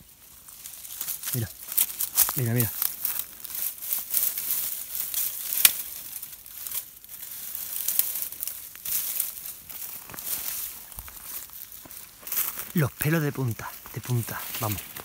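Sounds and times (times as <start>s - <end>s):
dry leaves and twigs crackling: 0.0s - 15.0s
sharp crack: 5.2s - 6.0s.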